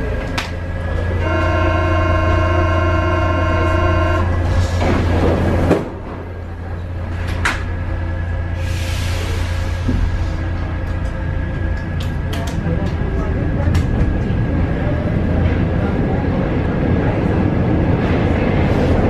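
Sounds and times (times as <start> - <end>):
train low hum: 0.0 - 19.0
train door warning buzzer: 1.2 - 4.4.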